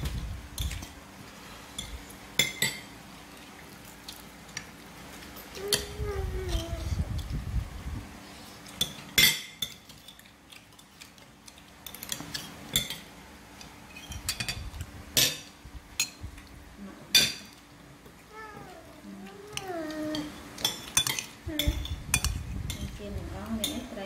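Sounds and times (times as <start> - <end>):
cutlery clinking on plates: 1.8 - 2.9, 8.8 - 10.3, 20.2 - 22.9.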